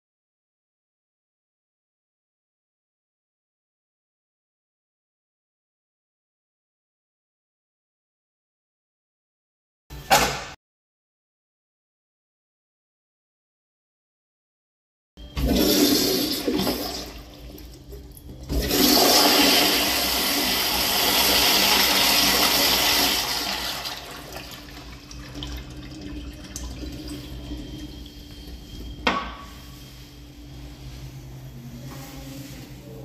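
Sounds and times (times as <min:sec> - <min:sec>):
toilet flushing water rush: 0:15.2 - 0:30.0.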